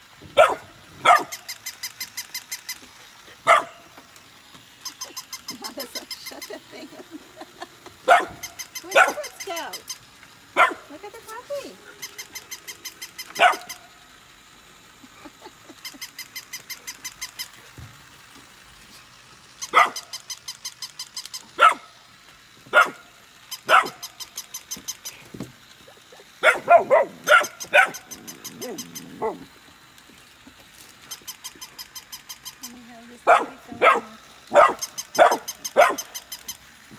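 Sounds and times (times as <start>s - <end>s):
toy motor ticking: 0.0s - 36.9s
puppies barking: 0.4s - 1.5s, 3.4s - 3.9s, 4.8s - 9.9s, 10.5s - 13.9s, 19.6s - 20.2s, 21.5s - 21.9s, 22.7s - 24.6s, 26.2s - 29.5s, 33.2s - 36.4s.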